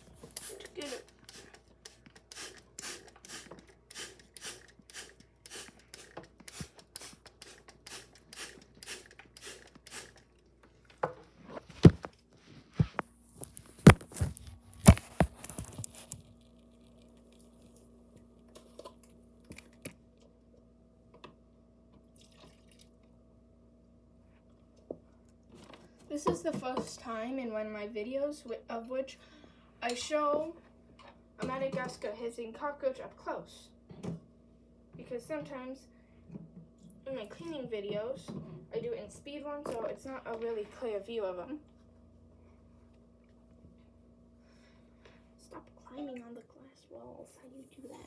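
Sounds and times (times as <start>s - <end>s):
spray bottle squirting: 0.3s - 10.3s.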